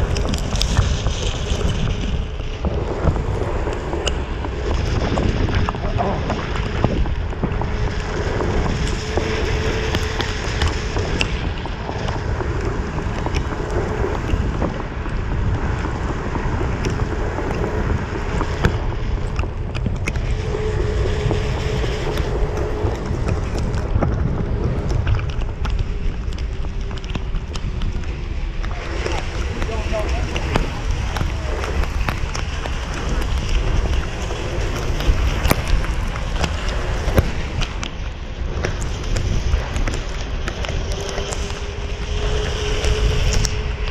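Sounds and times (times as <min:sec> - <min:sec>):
wind buffeting microphone: 0:00.0 - 0:43.9
tyre hiss on wet pavement: 0:20.0 - 0:43.9.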